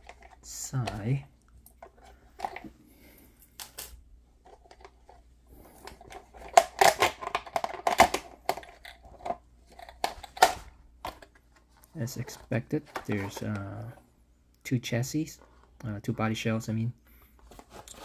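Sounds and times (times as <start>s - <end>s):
packaging rustling and crinkling: 17.4s - 18.0s.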